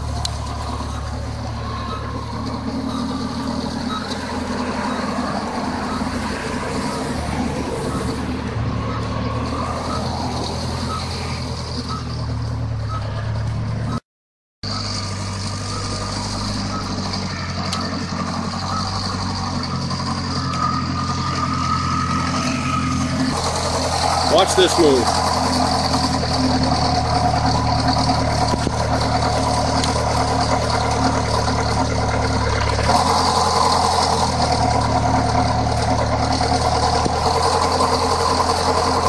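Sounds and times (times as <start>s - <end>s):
forklift engine running: 0.0s - 14.0s, 14.6s - 39.0s
backup alarm beeps: 0.6s - 8.3s, 9.5s - 12.2s, 12.8s - 13.2s, 15.6s - 21.9s.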